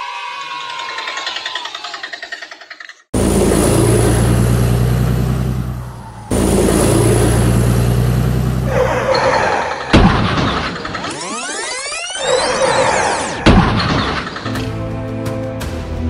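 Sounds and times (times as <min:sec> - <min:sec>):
vehicle engine running: 0:03.2 - 0:09.2.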